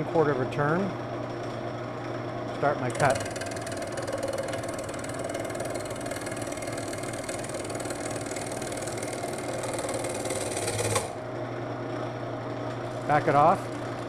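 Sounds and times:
lathe motor humming: 2.5s - 14.0s
lathe bit cutting wood: 2.9s - 11.2s.

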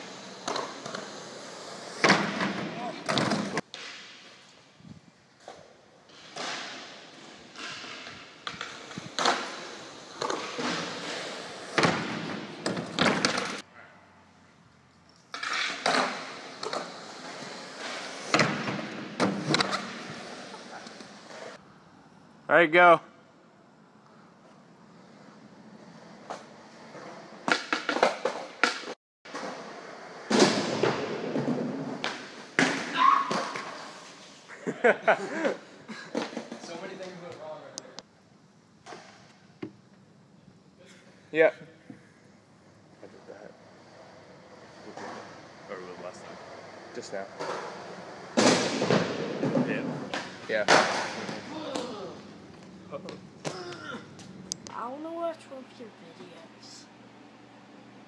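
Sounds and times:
skateboard rolling on concrete: 0.0s - 4.7s, 5.3s - 13.7s, 15.3s - 21.6s, 24.4s - 34.5s, 43.2s - 53.2s.

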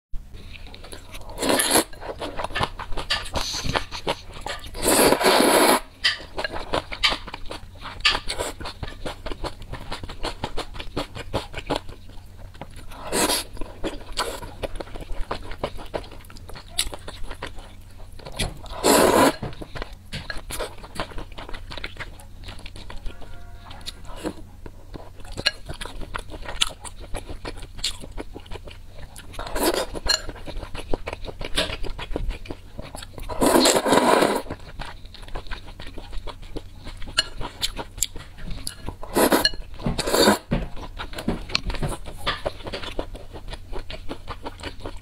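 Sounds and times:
wet chewing: 0.6s - 45.0s
noodle slurping: 4.8s - 5.8s, 18.7s - 19.4s.

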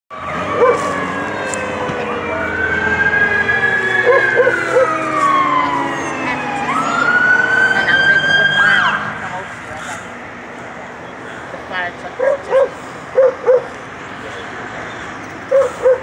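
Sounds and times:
fire engine siren wailing: 0.1s - 10.0s
passing highway traffic: 0.1s - 16.0s.

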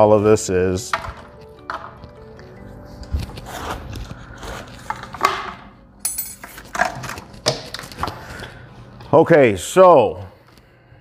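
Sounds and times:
plastic parts knocking and rustling: 0.8s - 2.2s, 6.4s - 8.2s.

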